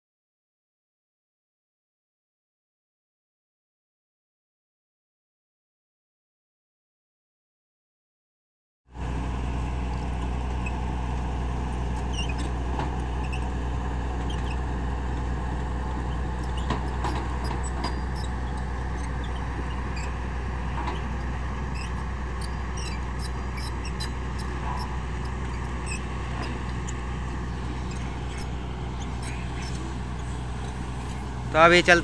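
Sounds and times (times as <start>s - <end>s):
excavator diesel engine humming: 9.0s - 32.0s.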